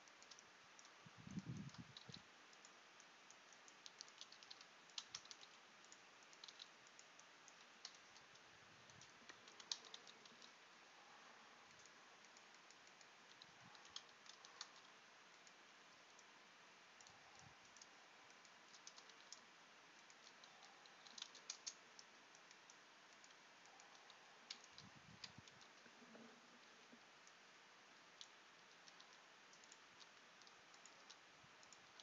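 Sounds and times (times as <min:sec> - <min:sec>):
low hiss: 0:00.0 - 0:32.0.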